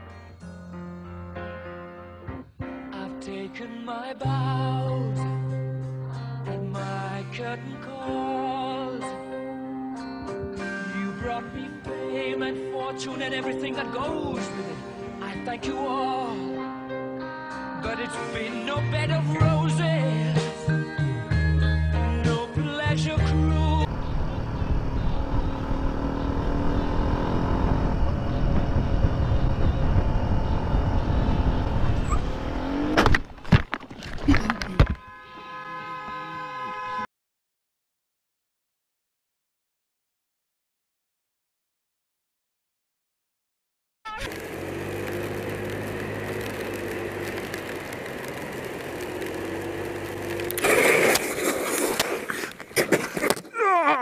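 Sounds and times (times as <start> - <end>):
motorcycle engine running: 23.8 - 33.3, 44.1 - 51.1
wind rush over microphone: 23.9 - 32.6
motorcycle crashing on road: 24.0 - 35.0, 44.2 - 53.4
constant hiss: 44.3 - 51.5.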